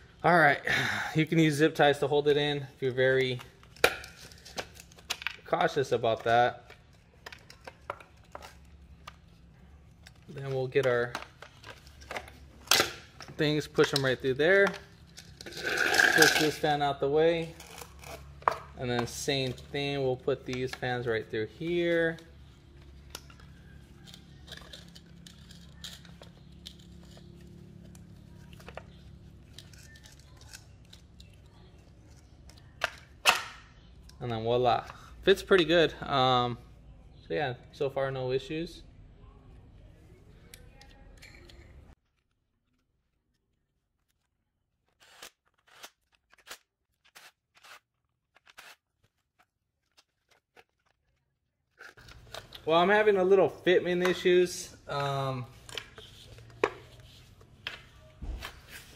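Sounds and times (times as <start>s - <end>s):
low background hum: 0.0s - 42.0s.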